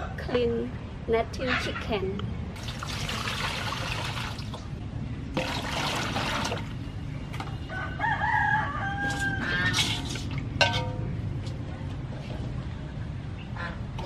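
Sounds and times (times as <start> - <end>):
water pouring and splashing: 2.6 - 4.7, 5.4 - 6.8, 9.8 - 10.4
rooster crowing: 7.6 - 10.0.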